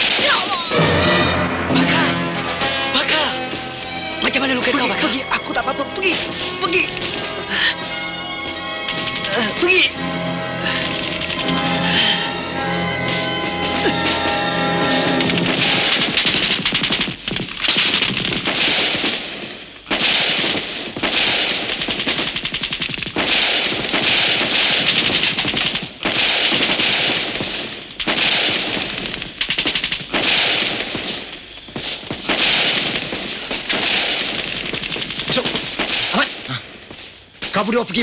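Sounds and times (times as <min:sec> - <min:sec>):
automatic gunfire bursts: 0:14.9 - 0:31.3, 0:32.1 - 0:36.4
single gunshots: 0:15.2 - 0:22.4, 0:23.1 - 0:29.0, 0:29.6 - 0:31.3, 0:32.2 - 0:34.6, 0:35.2 - 0:36.5.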